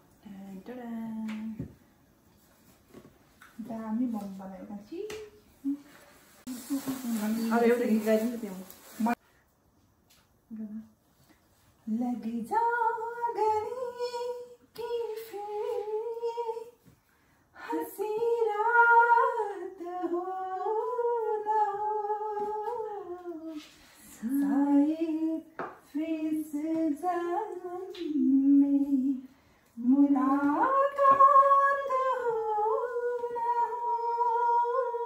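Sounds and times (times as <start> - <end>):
woman singing unaccompanied: 11.8 - 16.8, 17.6 - 35.0.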